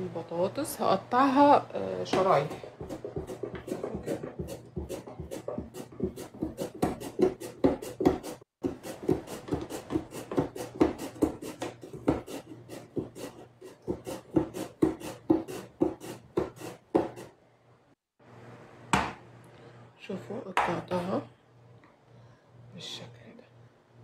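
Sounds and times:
potato scraping over slicer blade: 2.2 - 17.3.

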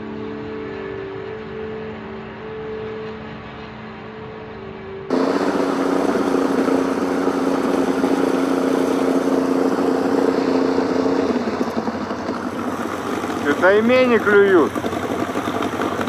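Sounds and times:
outboard motor running: 5.1 - 16.0
water noise: 5.1 - 16.0.

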